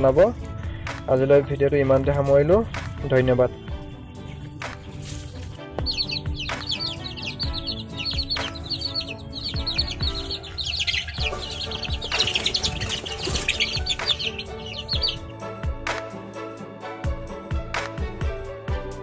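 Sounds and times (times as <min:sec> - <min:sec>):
soft background music: 0:00.0 - 0:19.0
chicks peeping: 0:01.1 - 0:15.4.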